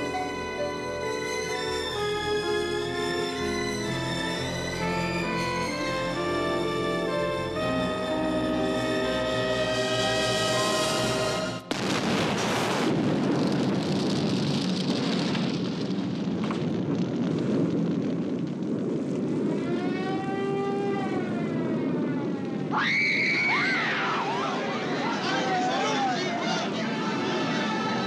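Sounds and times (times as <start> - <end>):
pitched whine: 0.0 - 11.9.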